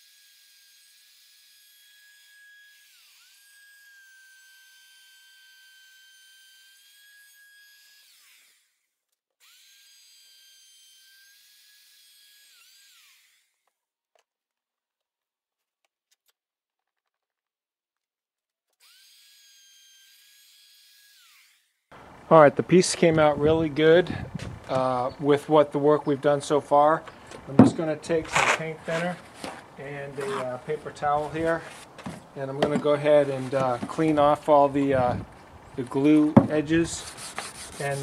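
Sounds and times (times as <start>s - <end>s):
router motor whining: 0.0s - 8.8s, 9.4s - 13.8s, 18.8s - 22.3s.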